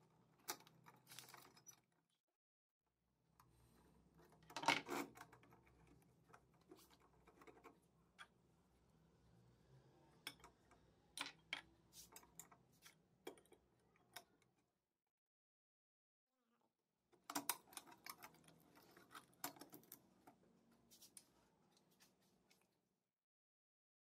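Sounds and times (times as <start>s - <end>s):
metal lantern parts clicking: 17.3s - 20.0s.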